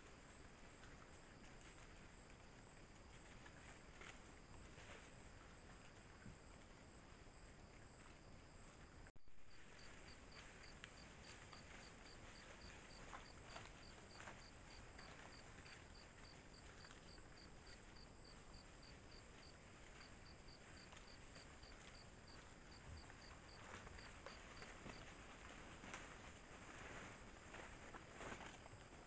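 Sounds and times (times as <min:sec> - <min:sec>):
insect chirping: 0:07.3 - 0:25.2.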